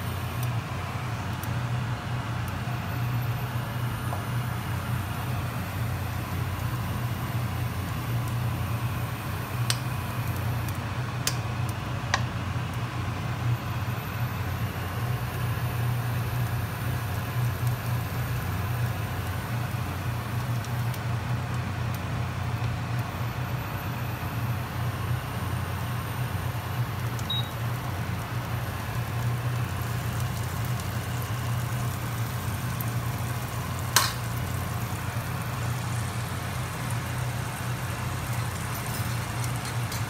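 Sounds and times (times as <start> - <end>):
butter sizzling in a frying pan: 0.0 - 40.0
utensil clicking against pan: 34.0 - 34.2.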